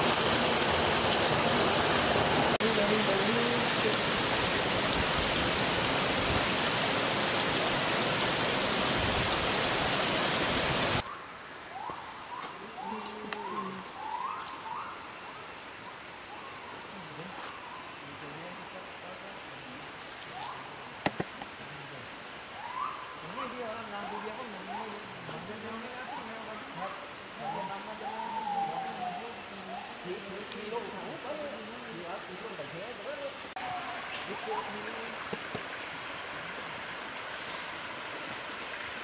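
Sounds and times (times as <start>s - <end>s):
stream running over rocks: 0.0s - 11.0s, 28.8s - 39.0s
high insect drone: 0.0s - 39.0s.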